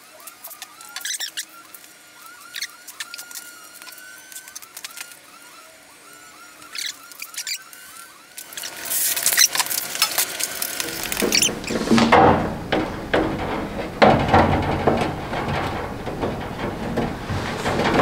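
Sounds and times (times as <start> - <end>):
metal clicks and rattles: 8.5 - 18.0
metal drawer sliding on slides: 10.8 - 18.0.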